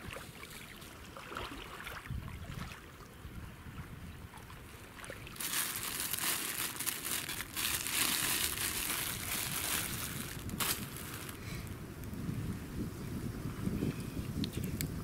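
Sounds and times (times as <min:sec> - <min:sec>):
plastic wrapper crinkling: 0:05.3 - 0:11.6.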